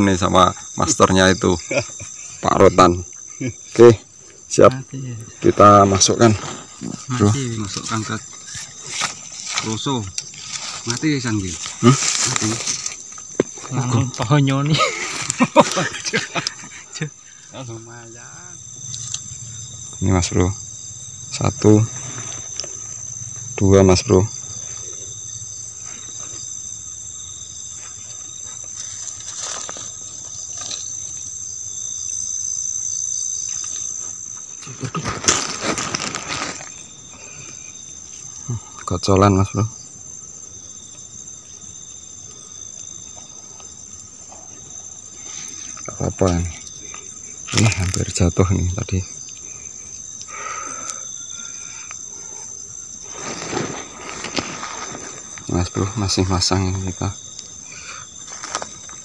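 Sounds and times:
crickets chirring: 0.0s - 59.0s
night insects trilling: 0.0s - 59.0s
fishing net rustling and scraping: 35.0s - 36.8s, 53.0s - 55.4s.

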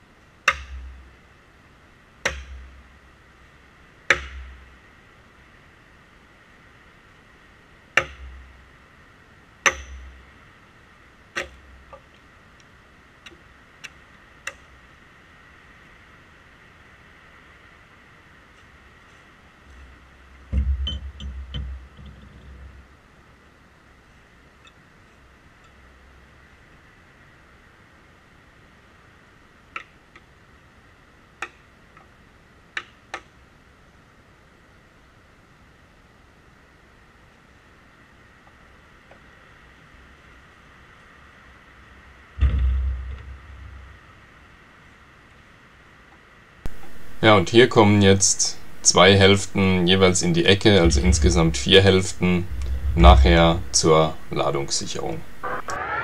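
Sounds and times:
low steady hiss: 0.0s - 56.0s
maul striking a log: 0.4s - 1.1s, 2.2s - 2.8s, 4.1s - 4.7s, 8.0s - 8.5s, 9.6s - 10.3s, 11.4s - 12.1s.

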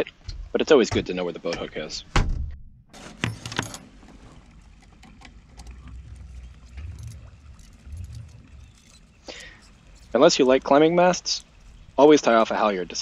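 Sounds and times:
halyard hardware clicks and rustles: 3.0s - 13.0s
low rumble: 4.5s - 10.7s.

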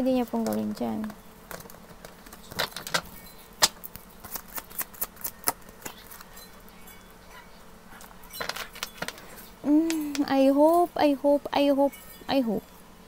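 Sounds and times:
cards being shuffled: 0.4s - 6.4s.

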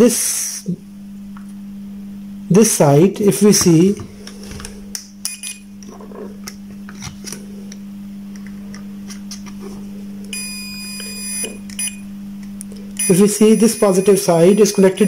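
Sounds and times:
low electrical hum: 0.0s - 15.0s
multimeter continuity beep: 5.2s - 5.7s, 10.3s - 12.1s, 13.0s - 15.0s.

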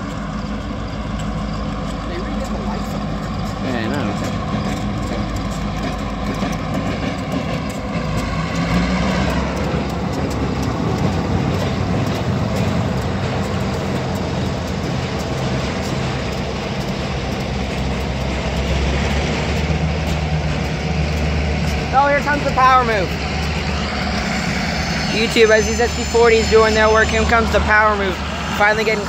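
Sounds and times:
locomotive engines rumbling: 0.0s - 29.0s
whine sliding down in pitch: 23.0s - 29.0s.

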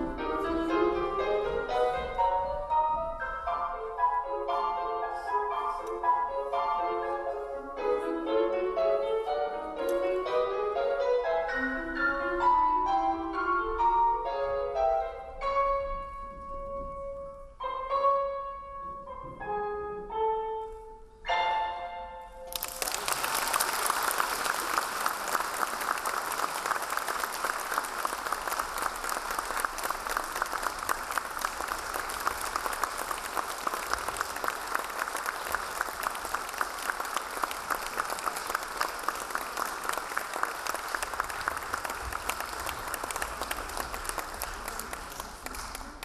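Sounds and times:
music: 0.0s - 22.8s
audience applauding: 22.5s - 46.0s.

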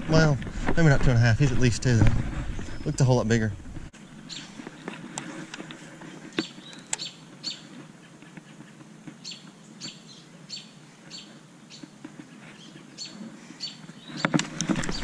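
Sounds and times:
bird chirping: 2.4s - 3.2s, 4.0s - 5.0s, 6.3s - 7.8s, 9.2s - 15.0s.

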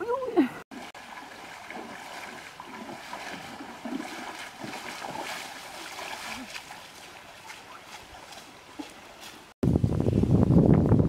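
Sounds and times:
river water lapping and splashing: 0.7s - 9.6s.

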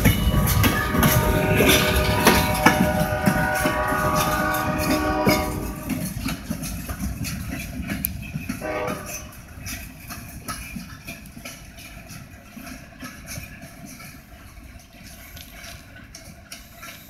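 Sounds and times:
steady ringing tones: 0.0s - 8.5s
train wheels rumbling: 0.0s - 17.0s.

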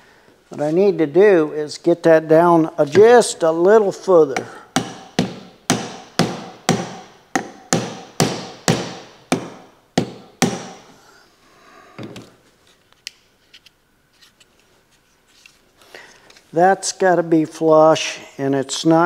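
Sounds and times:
hammer tapping on metal housing: 4.4s - 10.8s.

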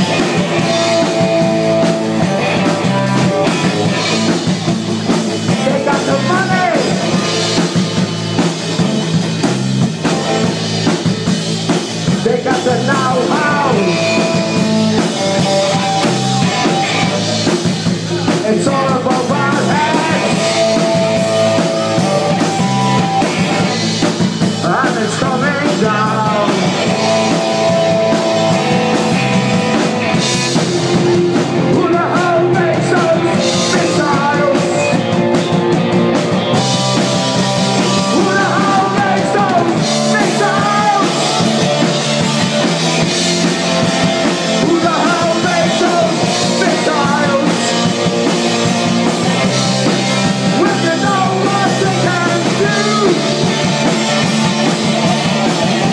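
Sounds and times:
live rock band playing: 0.0s - 55.9s
man singing: 5.4s - 8.0s, 12.1s - 23.8s, 24.5s - 28.6s, 31.3s - 35.4s, 37.4s - 41.8s, 44.3s - 53.9s.

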